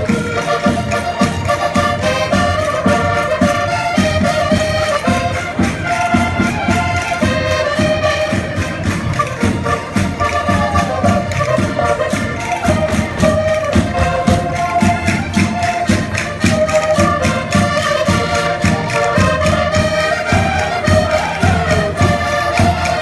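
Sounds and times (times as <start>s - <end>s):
accordion melody: 0.0s - 23.0s
drum and percussion beat: 0.0s - 23.0s.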